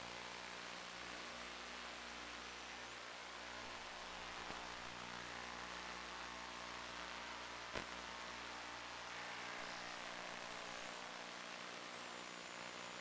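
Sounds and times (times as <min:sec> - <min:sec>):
radio static hiss and hum: 0:00.0 - 0:13.0
sharp click: 0:07.7 - 0:08.0.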